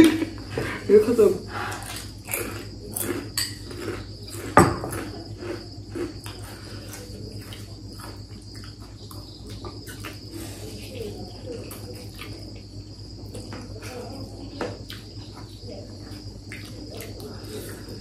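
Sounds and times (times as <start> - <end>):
forks clinking on plates: 3.4 - 3.8.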